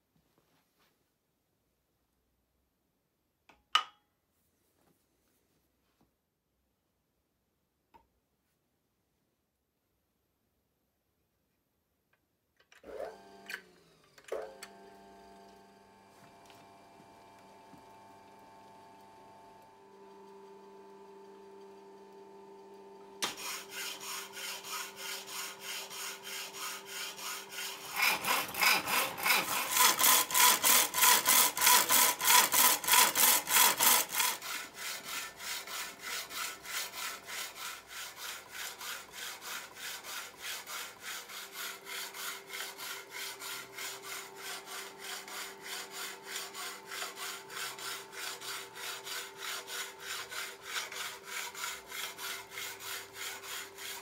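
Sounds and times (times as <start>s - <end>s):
faint motor hum: 12.9s - 54.0s
hacksaw blade rasping through metal: 23.2s - 54.0s.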